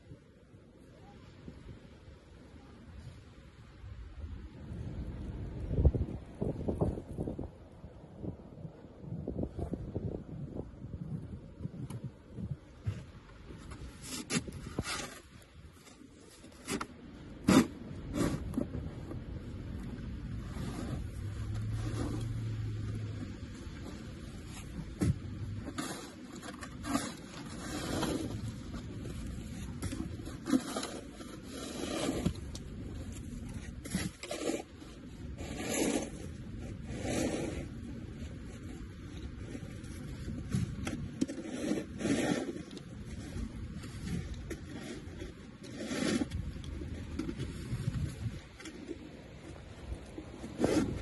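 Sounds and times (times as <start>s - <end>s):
wind rumble on microphone: 0.0s - 51.0s
plastic shovel scraping snow: 13.6s - 18.8s, 20.4s - 51.0s.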